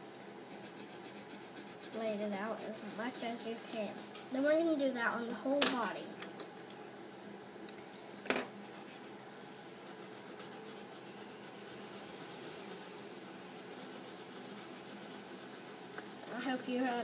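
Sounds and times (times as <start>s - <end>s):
pencil scratching on paper: 0.5s - 4.6s, 8.6s - 9.2s, 9.8s - 17.0s.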